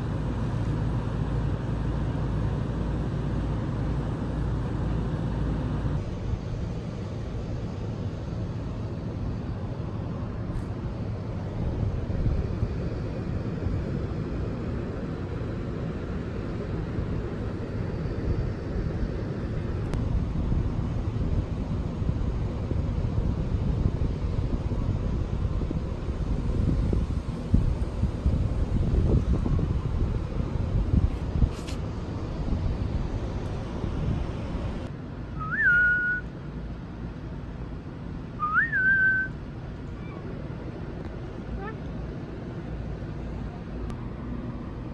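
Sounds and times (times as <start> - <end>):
wind buffeting microphone: 0.0 - 35.5
person whistling: 35.4 - 36.2, 38.4 - 39.3.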